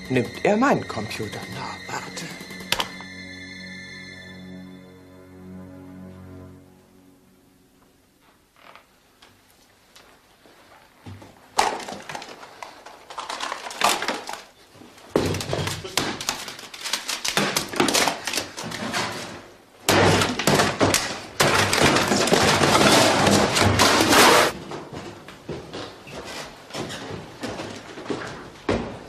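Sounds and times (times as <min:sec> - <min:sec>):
objects crashing and clattering: 0:15.2 - 0:24.6.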